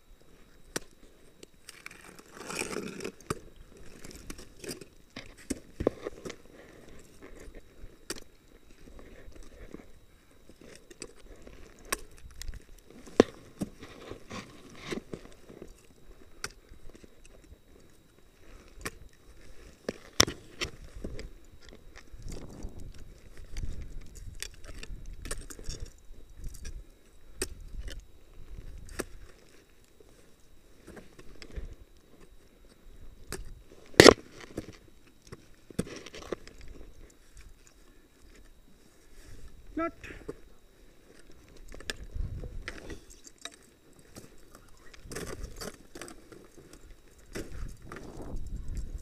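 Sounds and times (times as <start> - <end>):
crunching snow: 1.6 - 24.8.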